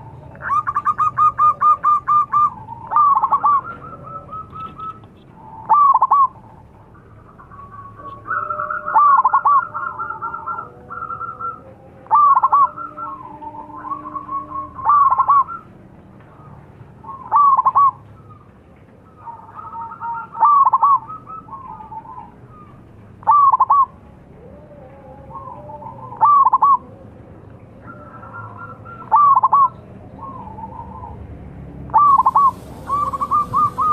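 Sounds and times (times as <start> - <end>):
doves cooing: 0.0 - 33.9
quiet coos and trills: 0.0 - 33.9.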